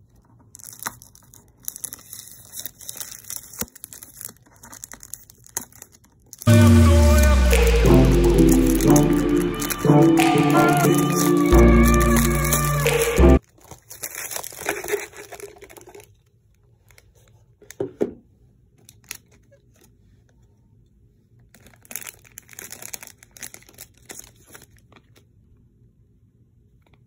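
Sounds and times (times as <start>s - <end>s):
plastic wrapping crinkling and tearing: 0.1s - 6.8s, 13.4s - 17.4s, 21.5s - 25.0s.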